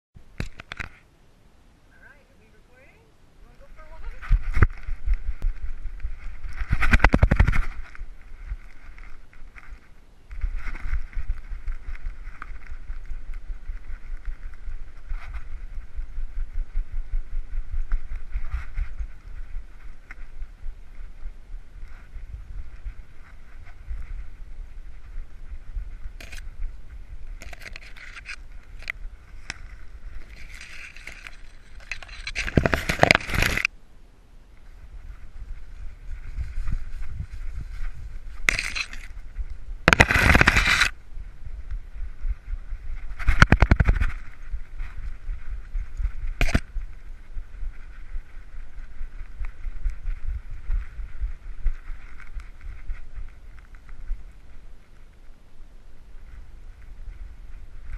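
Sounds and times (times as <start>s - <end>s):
leaves scraping against camera: 3.4s - 33.7s, 34.6s - 55.4s
low rumble of camera jostled: 3.4s - 33.7s, 34.6s - 57.9s
camera mount thumping and rubbing: 26.2s - 26.4s, 27.4s - 28.9s, 30.3s - 33.7s, 38.4s - 39.1s, 39.9s - 40.9s, 46.4s - 46.7s
loud rustling: 27.4s - 33.7s.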